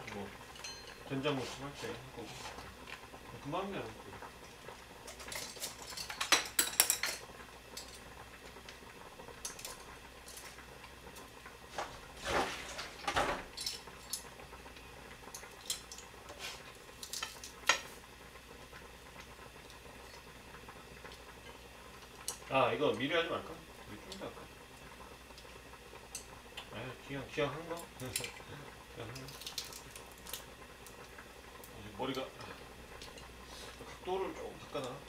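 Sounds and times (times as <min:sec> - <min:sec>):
utensils and dishware clinking: 0:00.5 - 0:01.2, 0:05.1 - 0:07.2.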